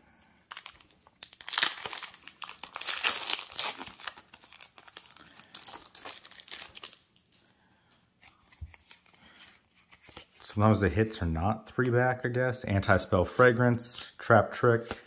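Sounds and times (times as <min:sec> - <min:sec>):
foil wrapper tearing and crinkling: 0:00.5 - 0:07.2.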